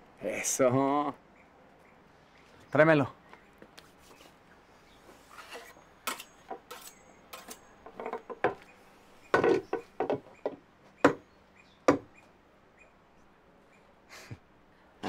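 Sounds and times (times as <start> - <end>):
wooden knocks and clatters: 7.8 - 8.6, 9.3 - 11.2.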